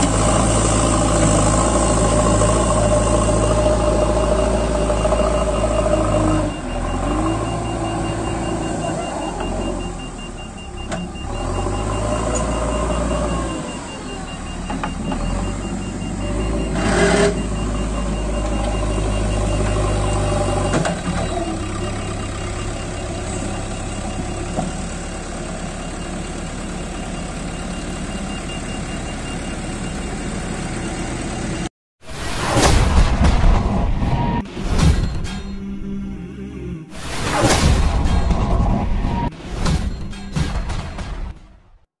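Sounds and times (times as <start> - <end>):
diesel engine running under load: 0.0 - 31.7.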